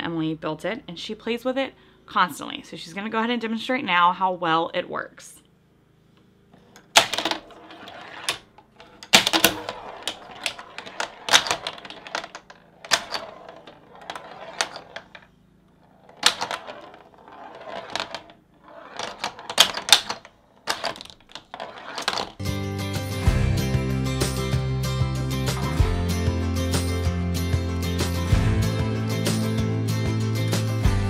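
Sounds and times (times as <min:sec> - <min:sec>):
metal ball rolling on wood: 0:06.6 - 0:22.4
pinball flippers clacking: 0:06.8 - 0:22.4.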